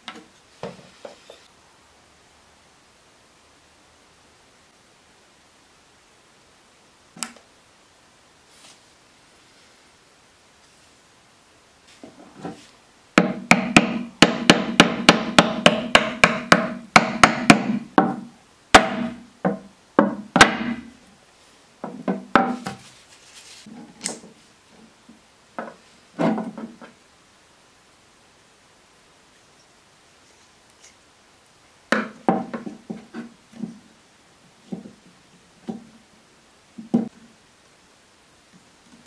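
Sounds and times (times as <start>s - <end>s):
hard hammer blows: 13.2s - 19.3s.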